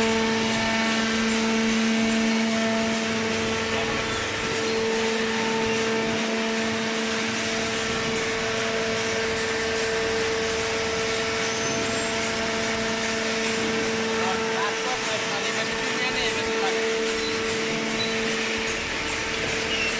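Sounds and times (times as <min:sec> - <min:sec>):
hydraulic pump motor humming: 0:00.0 - 0:19.9.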